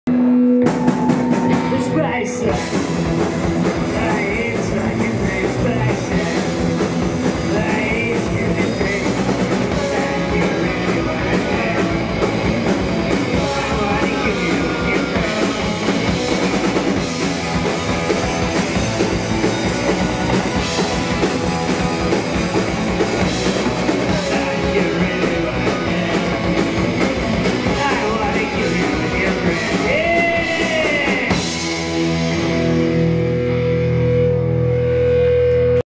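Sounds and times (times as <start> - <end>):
punk band playing live: 0.1 - 35.8
person singing: 0.2 - 17.1, 22.6 - 31.7.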